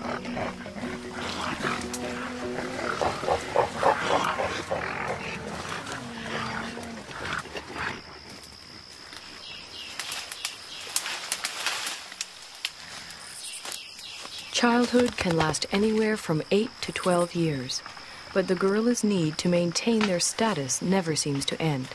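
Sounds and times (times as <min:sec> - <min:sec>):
gorillas grunting: 0:00.0 - 0:08.0
rustling in undergrowth: 0:08.3 - 0:15.8
twigs snapping: 0:09.9 - 0:12.8.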